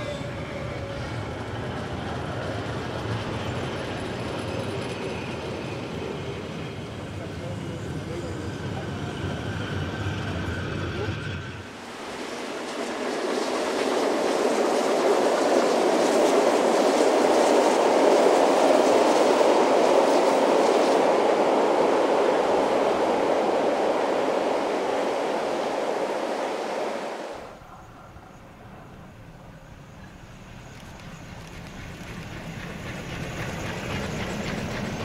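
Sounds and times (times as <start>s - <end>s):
train wheels rumbling on rails: 0.0s - 27.5s, 28.7s - 35.0s.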